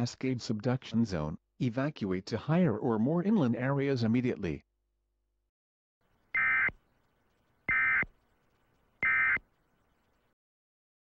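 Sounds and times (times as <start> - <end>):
two-tone data warble bursts: 6.4 - 6.7, 7.7 - 8.1, 9.0 - 9.4.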